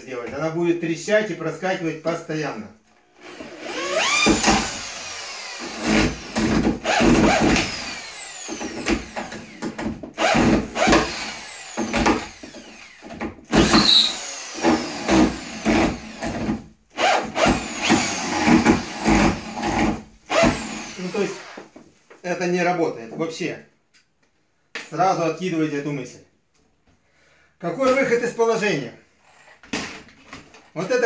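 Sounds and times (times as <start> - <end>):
drill motor whining: 3.2 - 16.4, 17.0 - 21.7
drill bit chattering in screw: 10.2 - 16.1.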